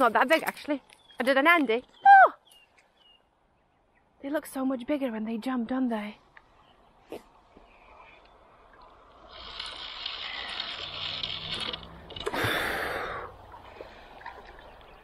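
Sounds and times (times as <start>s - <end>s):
fish splashing in water: 8.8s - 15.0s.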